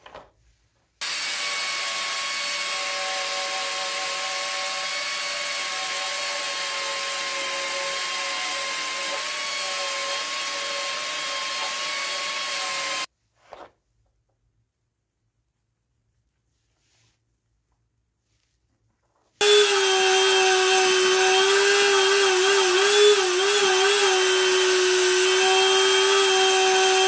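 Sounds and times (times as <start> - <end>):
drill motor whine: 1.0 - 13.1, 19.4 - 27.0.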